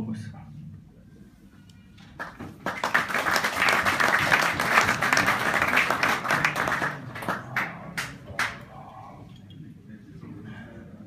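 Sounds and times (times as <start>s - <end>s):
crowd applauding: 2.2s - 8.7s.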